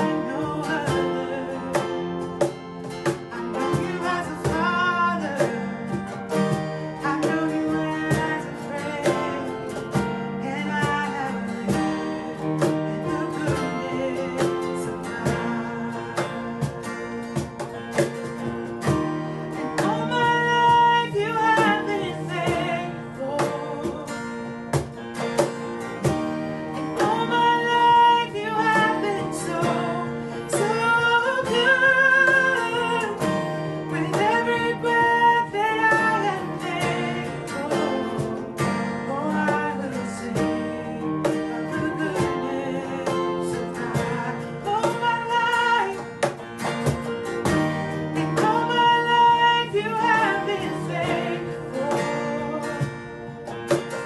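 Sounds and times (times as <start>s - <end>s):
person singing long notes: 0.0s - 2.5s, 6.8s - 16.8s, 19.2s - 24.1s, 26.6s - 46.0s, 47.9s - 53.0s
acoustic guitar strumming: 0.0s - 54.0s
keyboard accompaniment: 0.0s - 54.0s.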